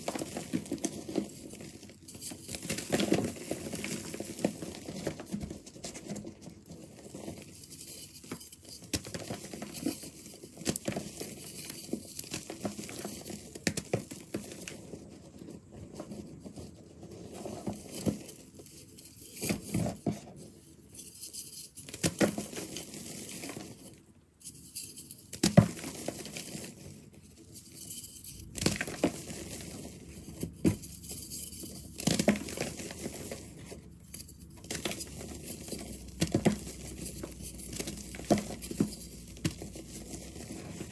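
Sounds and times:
crumbs pattering: 25.4s - 40.9s.

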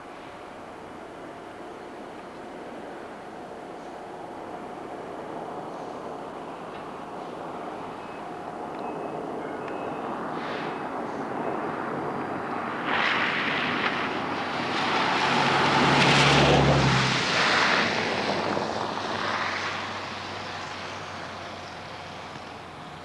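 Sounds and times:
vehicle passing by: 10.0s - 22.8s.

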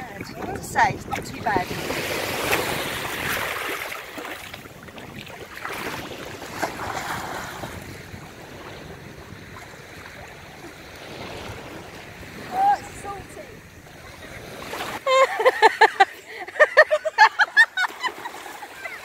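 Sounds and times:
water splashing from swimmer: 0.0s - 12.8s
waves washing over pebbles: 0.0s - 15.0s
wind on microphone: 0.0s - 15.0s.

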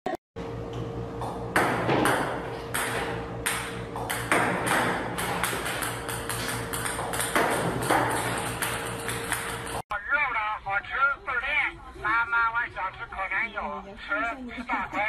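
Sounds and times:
steady low hum: 0.4s - 15.0s
ping-pong balls bouncing: 0.7s - 9.8s.

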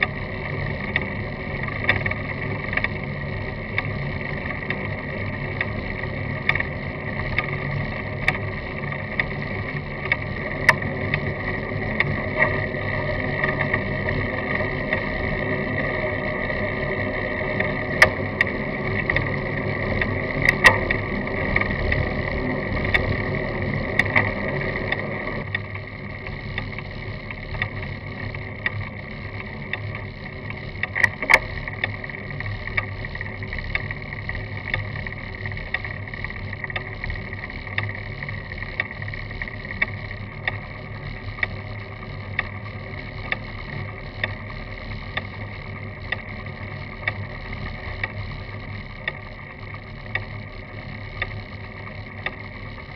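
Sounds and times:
bicycle rolling on road: 0.0s - 52.9s
small clicks and rattles: 0.0s - 52.9s.

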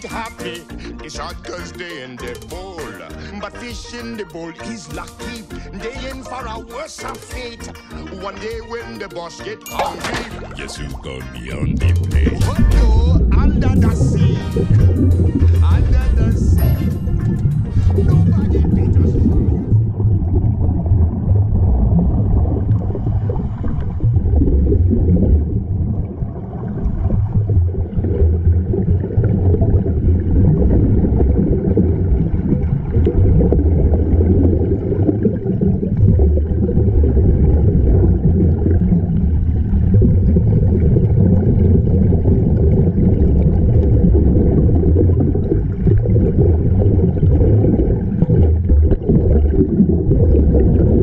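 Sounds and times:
air bubbling: 10.3s - 51.0s
underwater low rumble: 11.5s - 51.0s.

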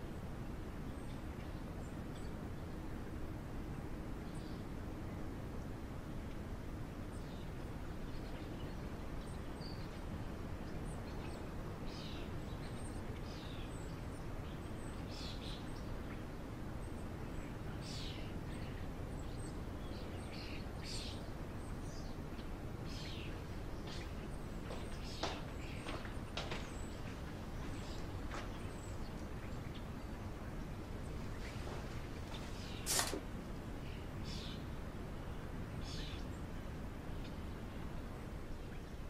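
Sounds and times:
low background hiss: 0.0s - 39.0s
birds chirping: 7.1s - 36.5s.

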